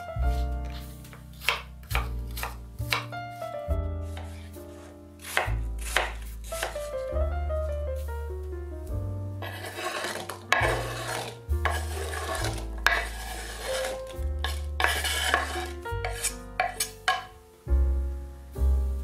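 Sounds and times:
background music: 0:00.0 - 0:19.0
knife scraping cutting board: 0:00.3 - 0:03.1, 0:04.1 - 0:06.9, 0:09.4 - 0:17.3.

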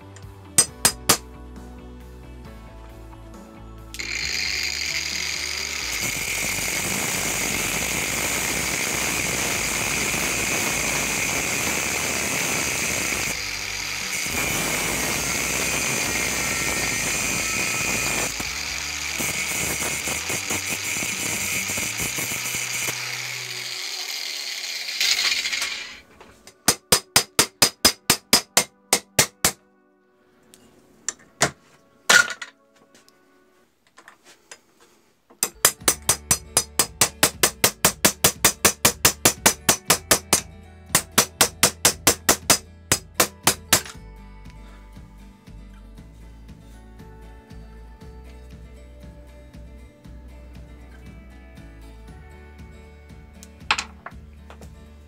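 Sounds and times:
angle grinder cutting steel: 0:04.0 - 0:26.1
hammer tapping a punch: 0:26.7 - 0:29.6, 0:41.0 - 0:44.0.

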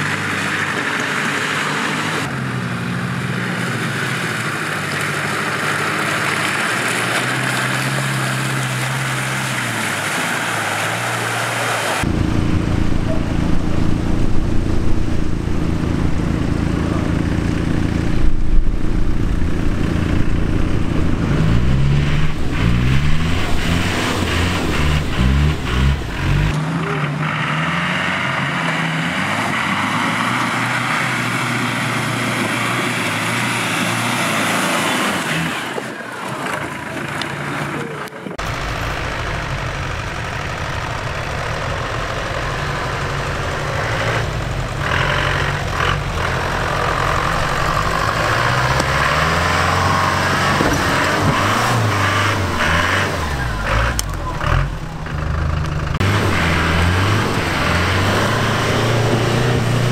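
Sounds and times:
off-road engine running: 0:00.0 - 0:59.9.

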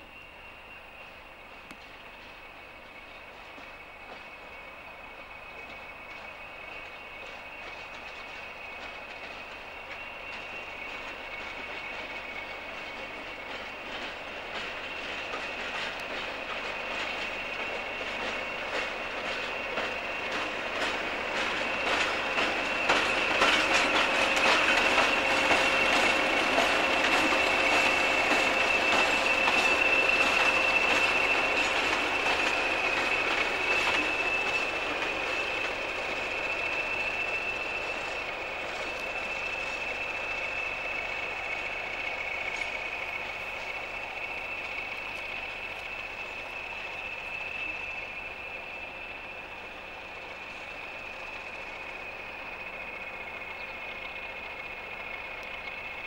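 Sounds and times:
diesel locomotive engines running: 0:00.0 - 0:56.0
steady high-pitched whistle: 0:00.0 - 0:56.0
train wheels clattering over rail joints: 0:05.4 - 0:56.0.

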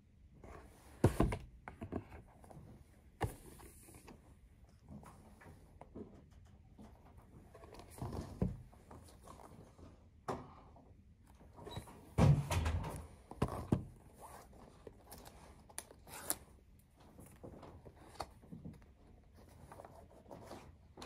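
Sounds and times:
cardboard knocks and scrapes: 0:00.6 - 0:04.1, 0:07.6 - 0:09.4.

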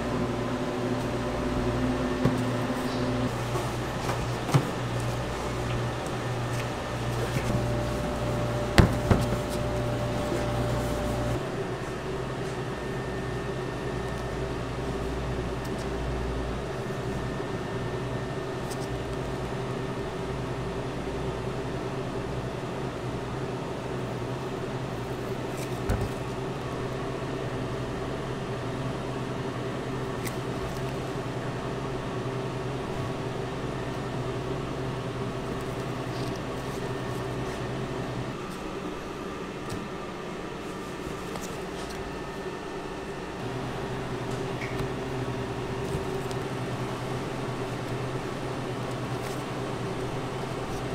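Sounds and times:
kitchen equipment hum: 0:00.0 - 0:50.9
knocks on cutting board: 0:08.8 - 0:09.4.

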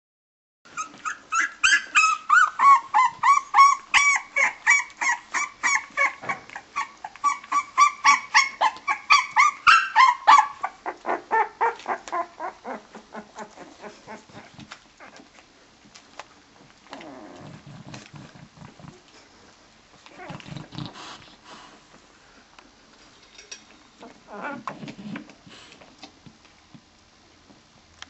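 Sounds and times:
puppy squealing yelps: 0:00.7 - 0:14.2.

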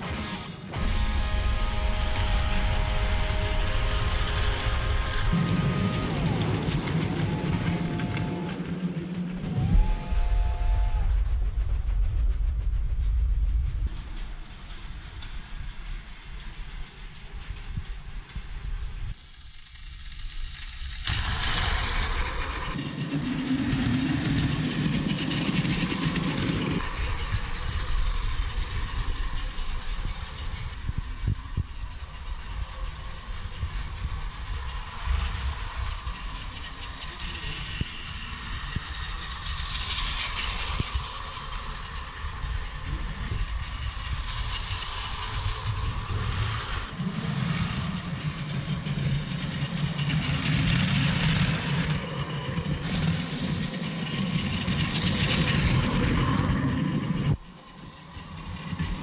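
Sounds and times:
low hum: 0:00.0 - 0:59.0
toy train motors whirring: 0:14.6 - 0:59.0.

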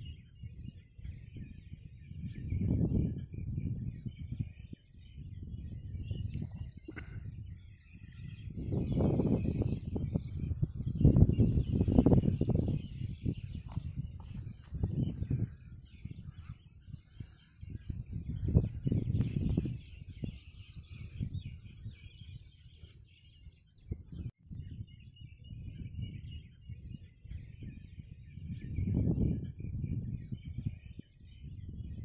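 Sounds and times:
small birds chirping: 0:00.0 - 0:32.0
high insect buzz: 0:07.6 - 0:23.7.

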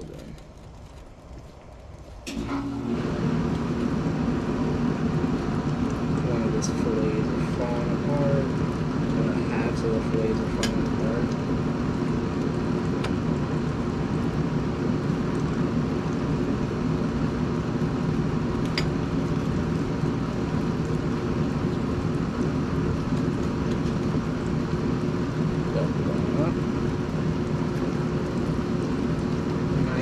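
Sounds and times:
machine hum and rumble: 0:00.0 - 0:30.0.

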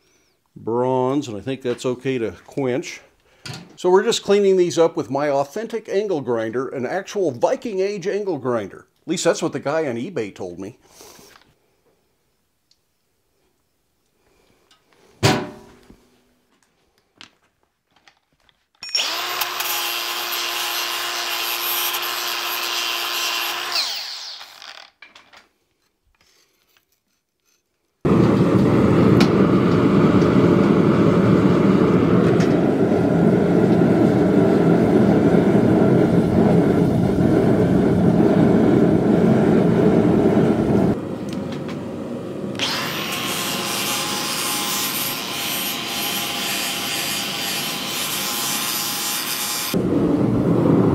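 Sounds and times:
angle grinder on steel: 0:18.8 - 0:25.0, 0:42.6 - 0:49.8.

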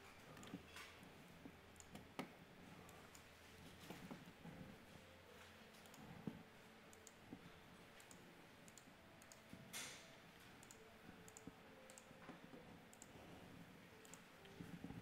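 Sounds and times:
faint sharp computer clicks: 0:08.0 - 0:10.0.

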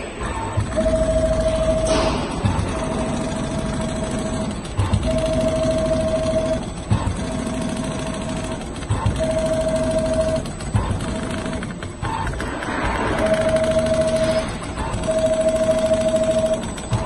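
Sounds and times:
machine knock: 0:00.0 - 0:17.0
sewing machine stitching: 0:00.2 - 0:17.0.

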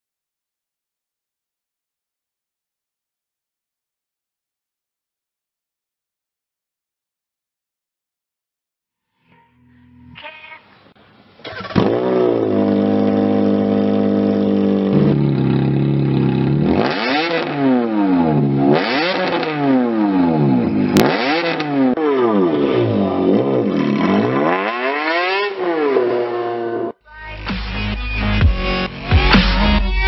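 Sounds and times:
car engine starting: 0:11.4 - 0:26.4
car engine idling and revving: 0:11.5 - 0:26.9.

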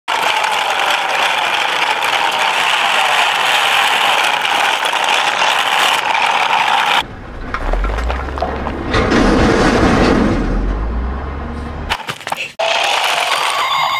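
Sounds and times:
toy wheels scraping on concrete: 0:00.1 - 0:07.0
low rumble: 0:07.0 - 0:11.9.

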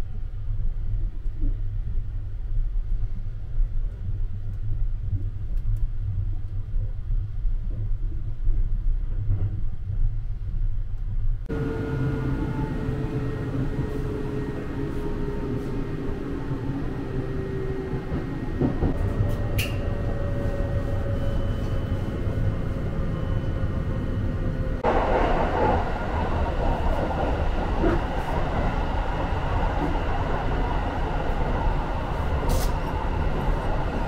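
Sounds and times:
train interior rumble: 0:00.0 - 0:34.0.

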